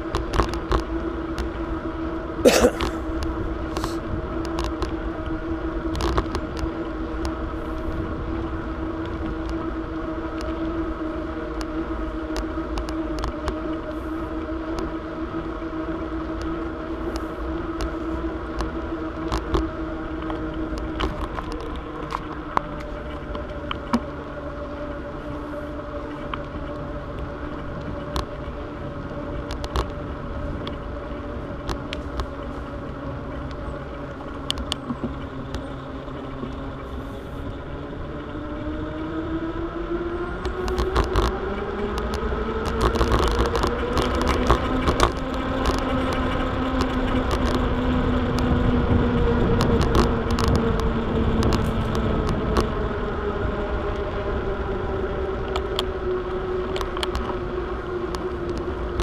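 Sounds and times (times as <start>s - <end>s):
bicycle rolling on pavement: 0.0s - 59.0s
humming tone: 0.0s - 59.0s
clicks and rattles over bumps: 40.4s - 48.8s, 49.5s - 52.8s.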